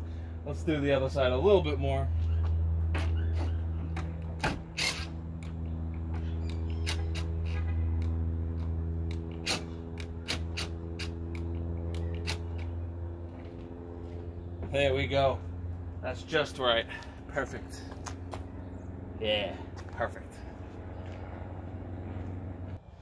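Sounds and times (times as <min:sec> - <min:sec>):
steady low hum: 0:00.0 - 0:23.0
adjuster clicking and creaking: 0:03.0 - 0:12.8.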